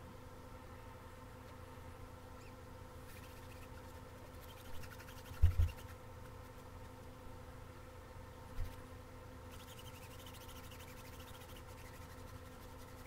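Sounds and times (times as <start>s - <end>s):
steady hum: 0.0s - 13.0s
foam brush scratching: 9.5s - 13.0s.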